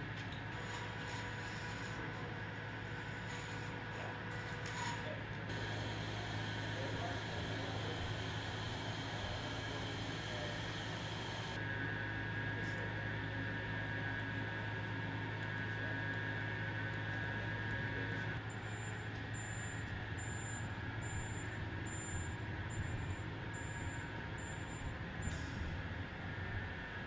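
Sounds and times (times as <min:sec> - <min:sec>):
low machine hum: 0:00.0 - 0:27.0
high whine: 0:05.5 - 0:11.6.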